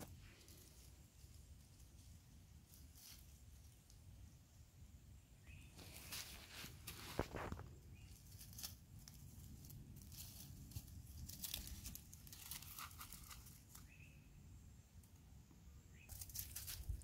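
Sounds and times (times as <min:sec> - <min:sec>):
footsteps crunching dry leaves: 0:05.8 - 0:13.7.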